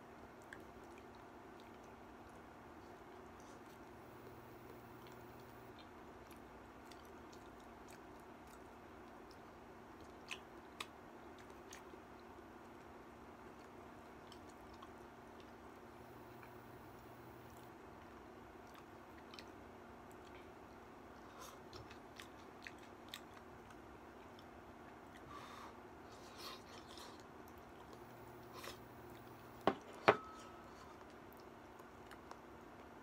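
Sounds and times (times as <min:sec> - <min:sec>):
chewing: 0:00.2 - 0:33.0
bowl knocking on table: 0:29.6 - 0:30.4.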